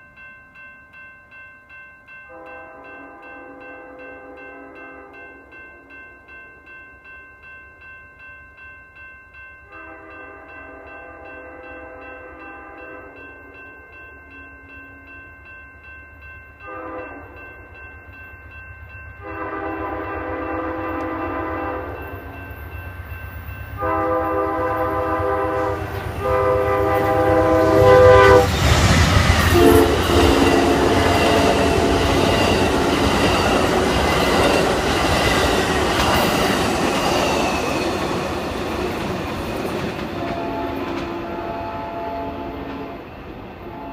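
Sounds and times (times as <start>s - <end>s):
crossing bells ringing: 0.0s - 43.9s
locomotive air horn blasts: 9.8s - 13.2s, 16.6s - 17.4s, 19.2s - 22.1s, 23.8s - 28.6s, 29.5s - 32.1s, 40.2s - 43.0s, 43.6s - 43.9s
train wheels clattering on rails: 22.0s - 41.7s.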